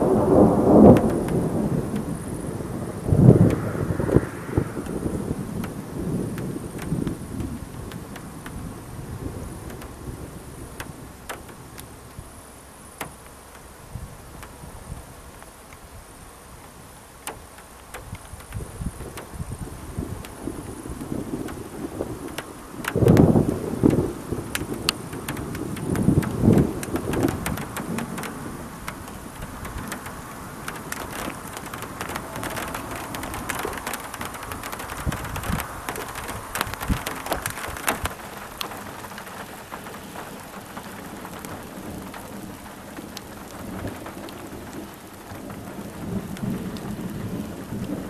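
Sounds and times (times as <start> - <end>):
insects chirping: 0.0 - 47.8
large raindrops tapping: 0.0 - 48.0
wind rumbling on microphone: 0.0 - 48.0
sharp clicks: 17.2 - 19.4, 22.2 - 39.9.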